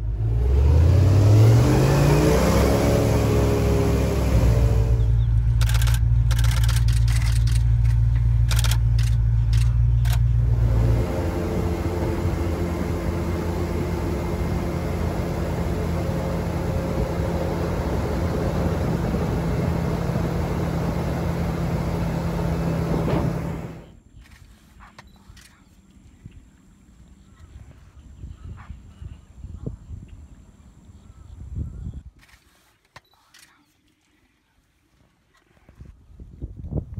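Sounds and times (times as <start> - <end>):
airboat engine and propeller: 0.0 - 23.9
sharp clicks: 5.4 - 10.3.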